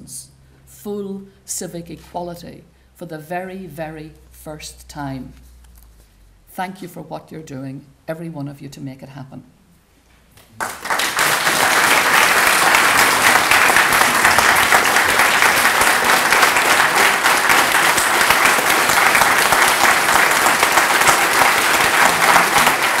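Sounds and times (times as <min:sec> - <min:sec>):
audience applauding: 0:10.6 - 0:23.0.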